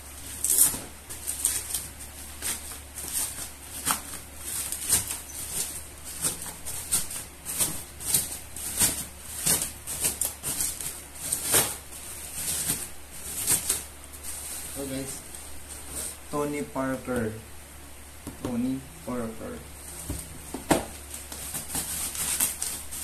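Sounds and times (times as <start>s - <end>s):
plastic bag crinkling: 0.0s - 16.3s, 19.8s - 23.0s.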